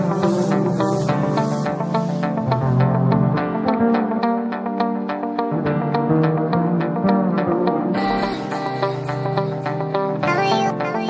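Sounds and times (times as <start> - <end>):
instrumental music with quick pulse: 0.0 - 3.1.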